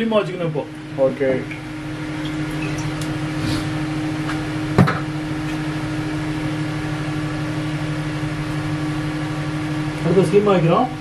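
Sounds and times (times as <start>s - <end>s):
small motor humming: 1.6s - 4.1s.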